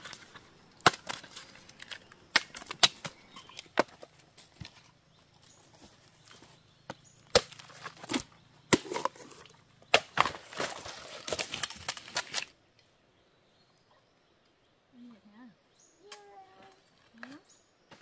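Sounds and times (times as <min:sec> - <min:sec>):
hand tool chopping bamboo: 0:00.0 - 0:04.1, 0:06.9 - 0:12.5.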